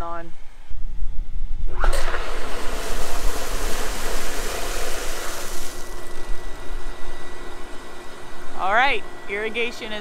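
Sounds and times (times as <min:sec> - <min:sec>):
water jetting from a pipe: 0:01.8 - 0:06.3.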